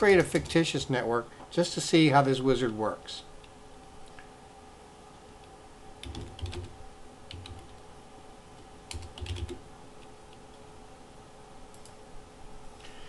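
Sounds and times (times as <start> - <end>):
keyboard keys clicking: 7.3 - 7.8, 8.9 - 9.6.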